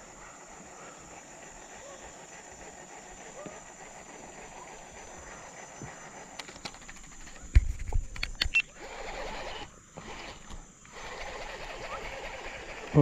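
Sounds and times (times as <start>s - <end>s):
knocks and clatter on plastic kayak: 6.4s - 8.4s.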